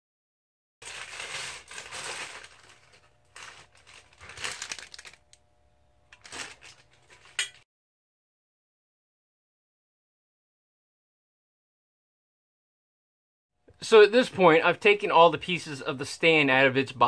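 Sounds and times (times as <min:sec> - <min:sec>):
plastic wrapping crinkling: 0:00.8 - 0:05.4, 0:06.1 - 0:07.6.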